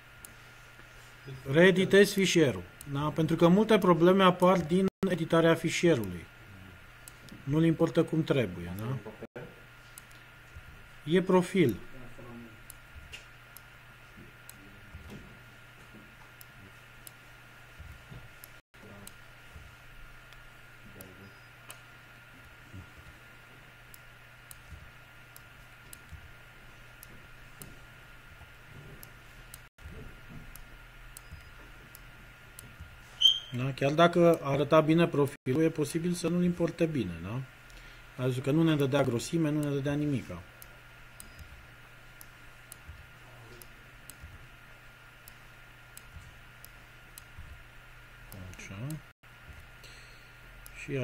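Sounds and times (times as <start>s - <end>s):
faint electrical hum: 0.0s - 51.0s
keyboard and mouse clicks: 30.4s - 33.4s, 41.2s - 44.4s.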